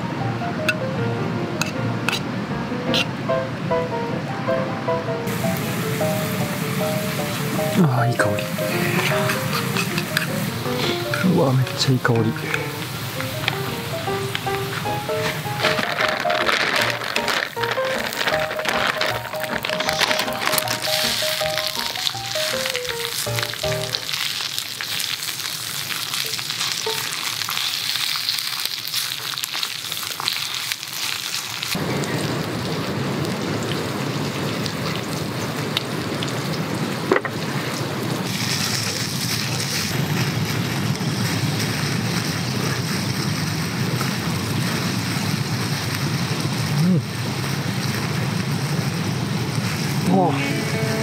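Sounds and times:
background music: 0.0s - 24.2s, 50.1s - 51.0s
food sizzling in a frying pan: 5.3s - 51.0s.

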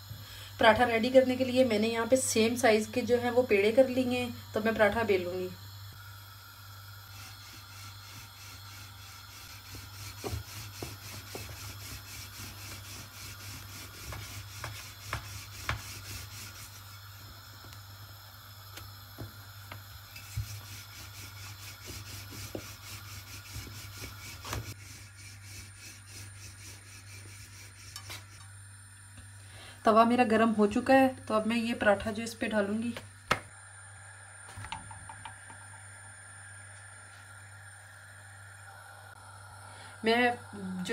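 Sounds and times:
steady low hum: 0.0s - 40.9s
rolling pin rubbing on dough: 7.1s - 17.2s, 20.2s - 28.4s.

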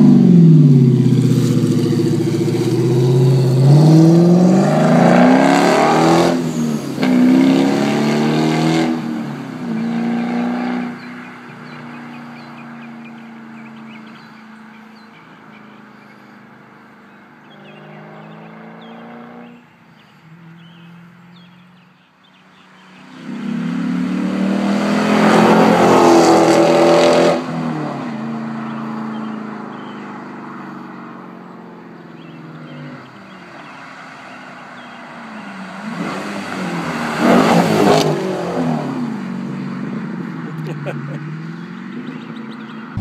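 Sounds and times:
car engine accelerating hard: 0.0s - 14.4s, 15.3s - 19.6s, 22.5s - 43.0s.

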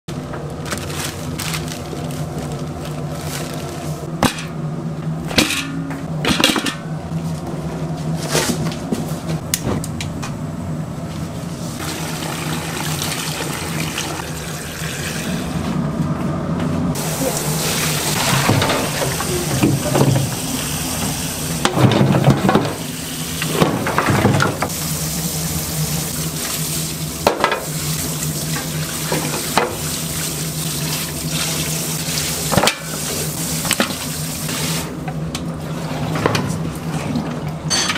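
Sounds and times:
steady low hum: 0.1s - 37.9s
tap water running into sink: 11.8s - 15.4s.

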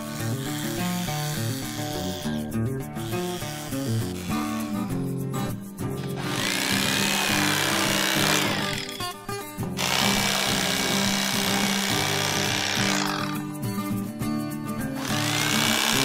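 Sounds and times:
background music: 0.0s - 16.0s
electric knife cutting fish: 6.1s - 9.0s, 9.8s - 13.4s, 15.0s - 16.0s.

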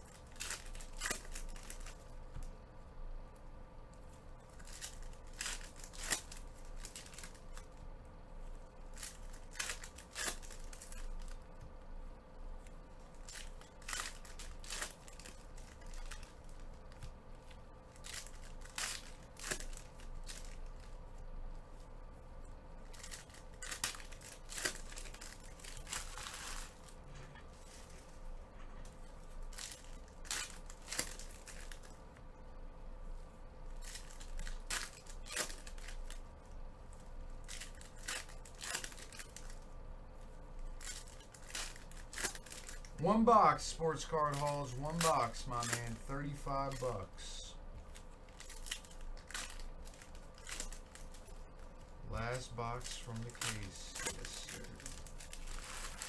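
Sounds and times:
foil wrappers tearing and crinkling: 0.0s - 2.2s, 4.4s - 7.8s, 8.5s - 11.4s, 12.6s - 21.8s, 22.8s - 28.3s, 29.0s - 32.0s, 33.7s - 36.3s, 36.9s - 56.0s
cards being handled: 40.6s - 56.0s.

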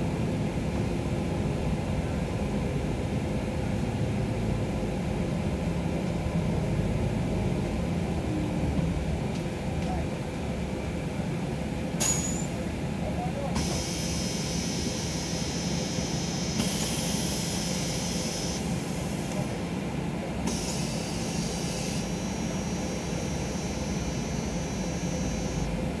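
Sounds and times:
bus diesel engine idling: 0.0s - 26.0s
thin high whine: 20.6s - 25.8s.

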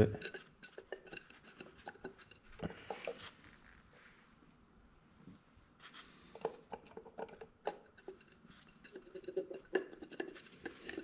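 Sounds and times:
plastic cap clicking and rubbing: 0.2s - 3.3s, 5.9s - 11.0s.

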